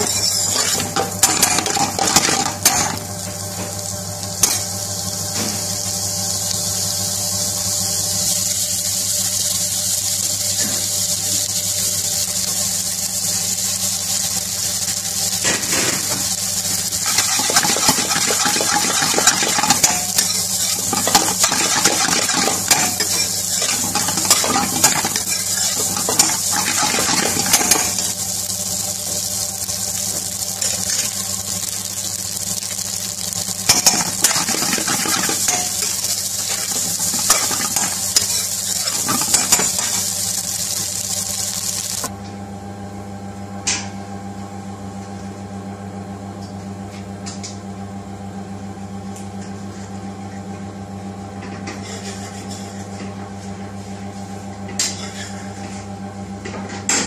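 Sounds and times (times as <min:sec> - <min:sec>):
rice sizzling in a pan: 0:00.0 - 0:42.1, 0:50.6 - 0:57.0
metal spoon scraping a pan: 0:17.0 - 0:28.1, 0:51.7 - 0:52.8.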